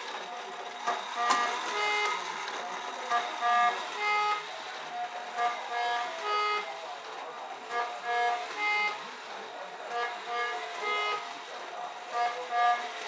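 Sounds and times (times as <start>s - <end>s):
clock reed horns playing tune: 9.9s - 11.3s, 12.1s - 13.0s.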